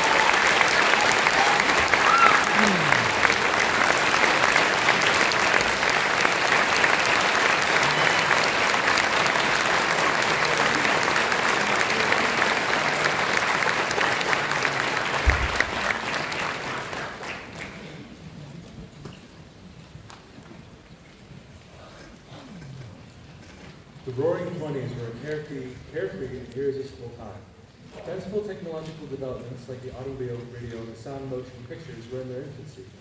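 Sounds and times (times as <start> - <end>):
audience applauding: 0.0 - 18.2.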